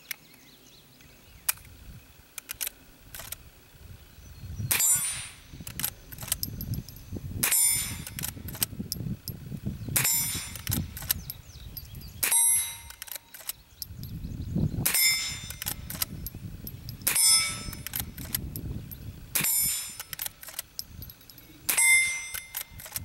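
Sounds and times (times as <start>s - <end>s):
ringing metallic clang: 4.7s - 5.5s, 6.4s - 8.2s, 10.0s - 10.8s, 11.8s - 13.1s, 14.8s - 18.2s, 18.9s - 20.2s, 20.8s - 22.8s.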